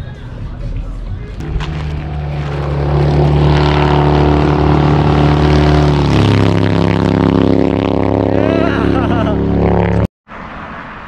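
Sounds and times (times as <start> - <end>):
motorcycle engine approaching: 1.4 - 10.1.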